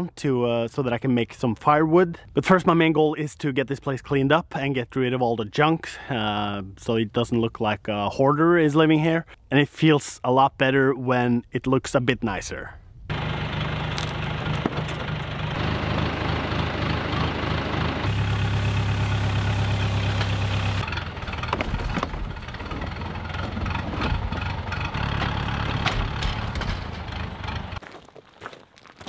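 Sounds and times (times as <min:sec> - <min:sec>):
tractor engine running: 0:13.1 - 0:27.9
metal junk clattering: 0:21.3 - 0:27.7.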